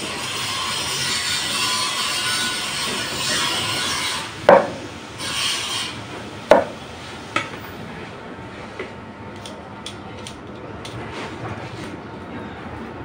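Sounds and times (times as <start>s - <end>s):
sharp knocks: 4.5s - 4.8s, 6.5s - 6.8s.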